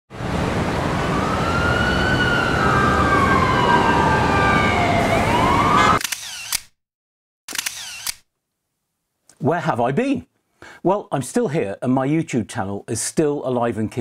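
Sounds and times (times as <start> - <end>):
emergency vehicle siren wailing: 0.2 - 6.0
camera shutter clicks: 6.0 - 6.8, 7.5 - 8.3.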